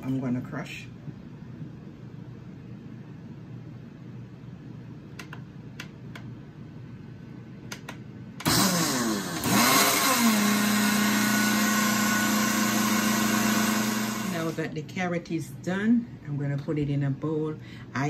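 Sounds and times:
blender motor crushing pulp: 0:08.4 - 0:14.6.

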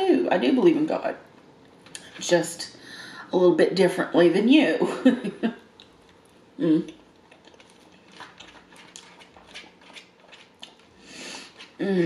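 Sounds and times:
chewing soft food: 0:05.7 - 0:11.8.

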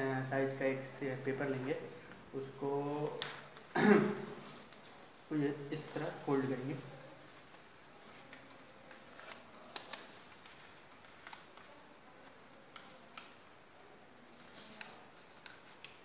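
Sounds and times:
paper rustling and crackling: 0:04.4 - 0:13.4, 0:14.2 - 0:16.0.

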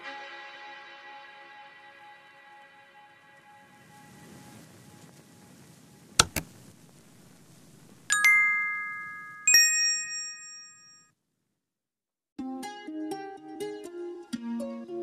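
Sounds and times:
bell notification dings: 0:08.1 - 0:11.0.

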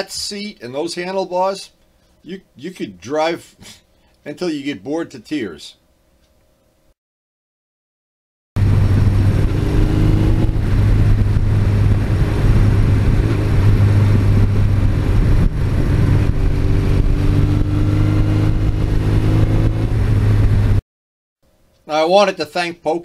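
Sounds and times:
motorcycle engine cruising: 0:08.6 - 0:20.8.

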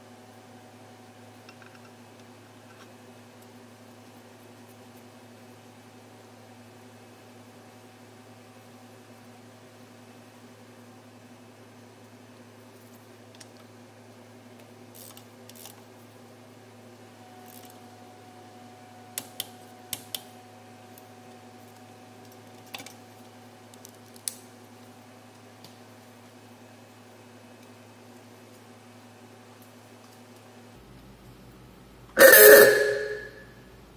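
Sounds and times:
steady low hum: 0:23.0 - 0:33.9.

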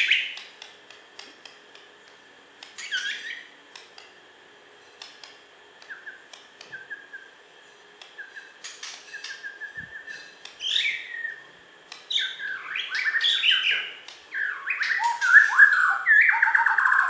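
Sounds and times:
songbird whistles and trills: 0:02.8 - 0:03.6, 0:05.8 - 0:07.4, 0:08.0 - 0:17.0.

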